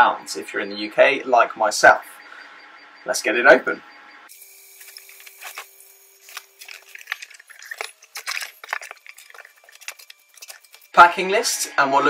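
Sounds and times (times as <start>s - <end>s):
packing tape cut with knife: 4.8s - 10.9s
cardboard crackling and rustling: 4.8s - 11.0s.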